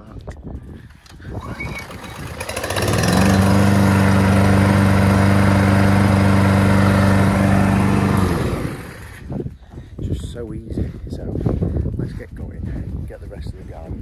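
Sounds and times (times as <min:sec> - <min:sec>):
lawnmower engine running: 0:01.4 - 0:09.3.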